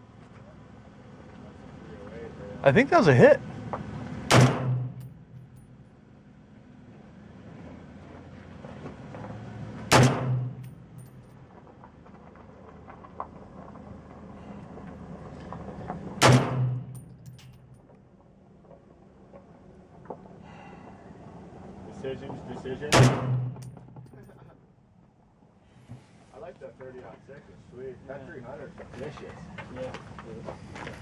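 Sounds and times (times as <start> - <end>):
rifle shots with booming echo: 4.3 - 5.0, 9.9 - 10.6, 16.2 - 16.9, 22.9 - 23.7.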